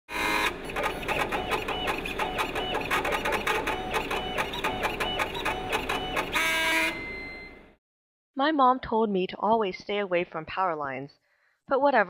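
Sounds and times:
stepper motors whining: 0.1 - 7.5.

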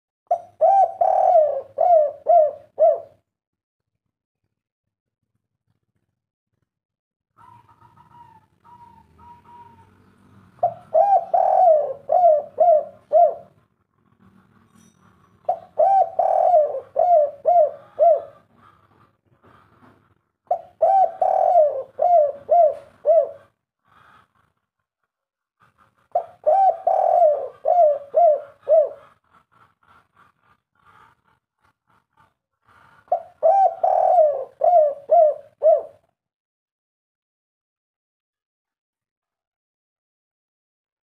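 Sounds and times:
dove cooing: 0.3 - 3.2, 7.4 - 13.7, 15.5 - 19.6, 20.5 - 24.1, 26.0 - 29.7, 33.0 - 36.1.

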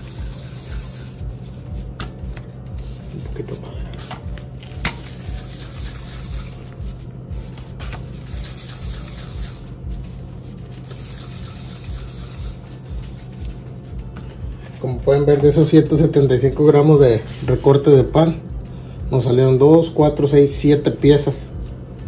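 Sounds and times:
gloved hands rubbing dough: 0.0 - 15.6.

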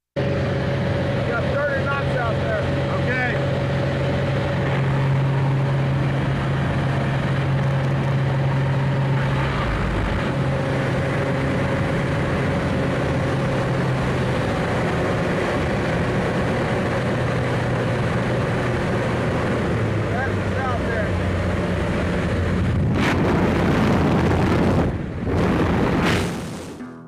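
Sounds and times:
propeller engine running: 0.0 - 27.0
wind rushing: 21.2 - 26.8.

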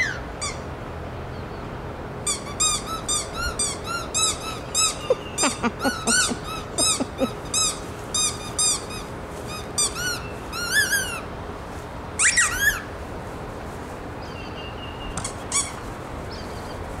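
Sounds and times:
dog whining in high squeaks: 12.2 - 12.8.

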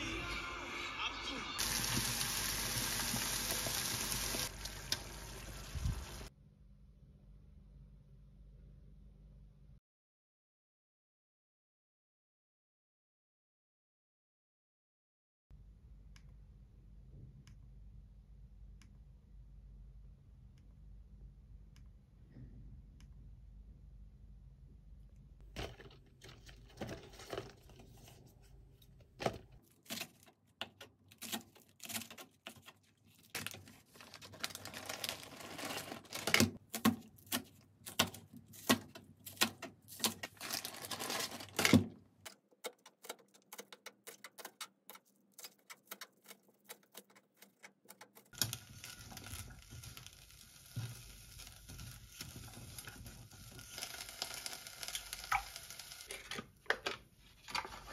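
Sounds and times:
faint sizzle in pot: 1.6 - 6.3, 48.3 - 56.4.

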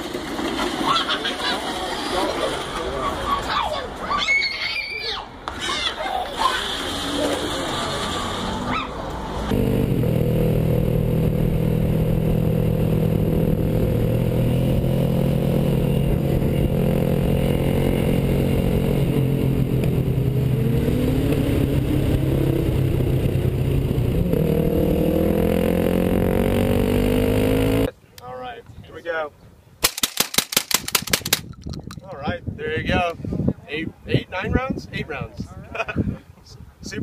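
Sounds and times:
dirt bike engine running: 9.5 - 20.4.

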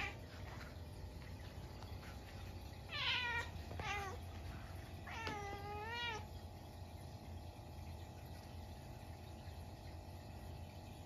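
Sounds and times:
cat meowing: 2.9 - 4.3, 5.0 - 6.3.

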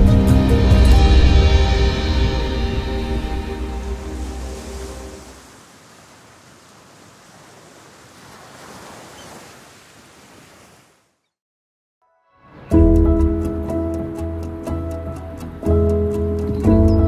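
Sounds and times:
sea waves washing: 0.0 - 11.2.

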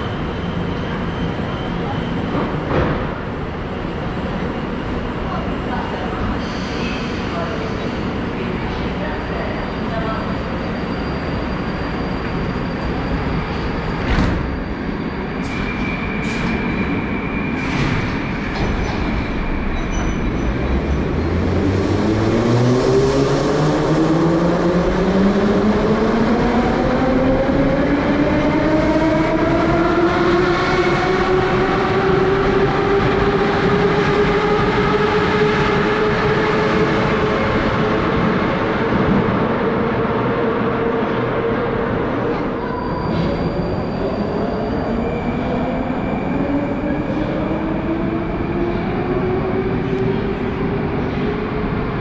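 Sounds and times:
train doors shutting: 12.2 - 21.0, 42.0 - 47.8.

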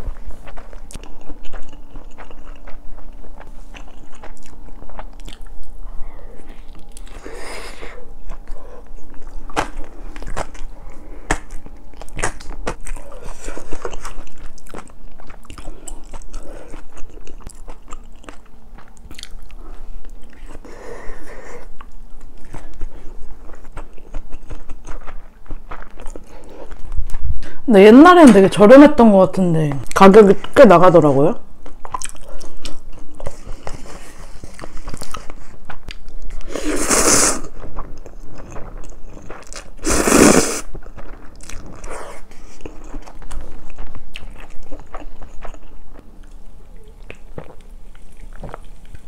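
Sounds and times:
chewing with wet mouth clicks: 0.1 - 5.8, 8.2 - 20.6, 21.7 - 27.5, 31.6 - 36.5, 40.7 - 49.0.

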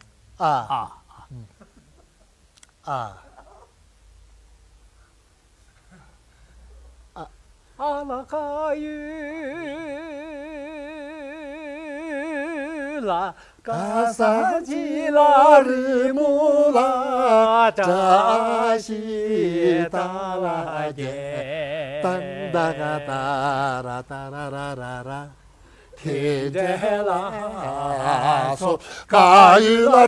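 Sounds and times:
man singing with vibrato: 7.2 - 30.0.

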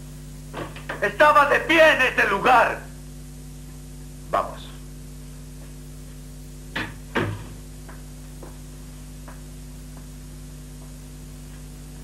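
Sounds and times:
steady hum: 0.0 - 12.0
faint footsteps on floor: 5.5 - 6.3, 7.3 - 12.0
sharp knocks: 6.7 - 7.6.

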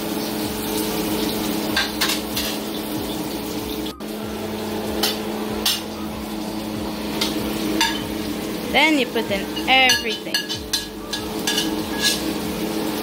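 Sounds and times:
onions sizzling in a pan: 0.0 - 13.0
steady hum: 3.9 - 13.0
spoon scraping and clinking pan: 7.2 - 8.1, 9.5 - 12.4.

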